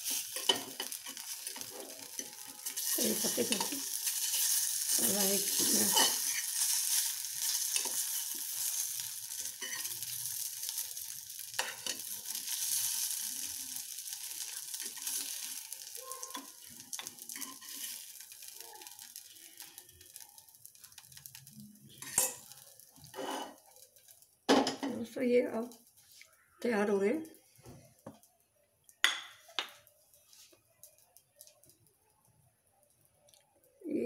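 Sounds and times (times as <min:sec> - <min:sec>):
spoon scraping a pan: 0:00.0 - 0:10.8, 0:11.4 - 0:20.2, 0:20.8 - 0:23.8
hot pan sizzling: 0:00.0 - 0:27.3.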